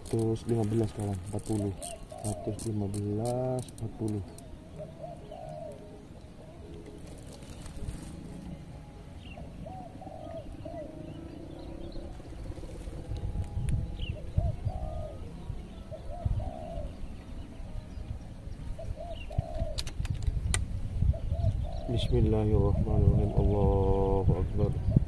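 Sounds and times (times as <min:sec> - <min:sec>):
dove cooing: 0:00.1 - 0:08.6, 0:09.2 - 0:17.3, 0:18.8 - 0:20.0, 0:21.0 - 0:25.0
wind rumble on microphone: 0:06.6 - 0:25.0.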